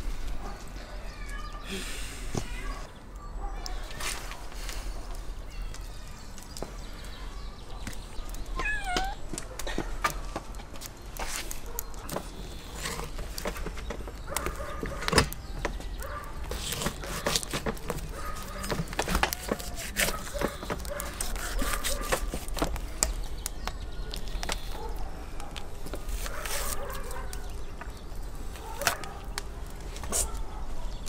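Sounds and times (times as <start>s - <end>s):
knife cutting and scraping meat: 16.5s - 22.6s.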